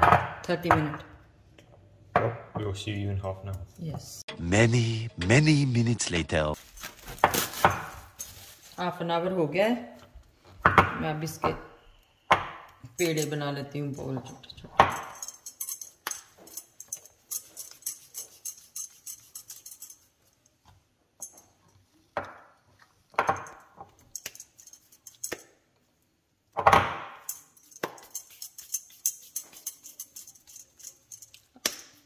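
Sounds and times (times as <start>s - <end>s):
light jingling and clinking: 13.0s - 20.6s, 27.2s - 31.5s.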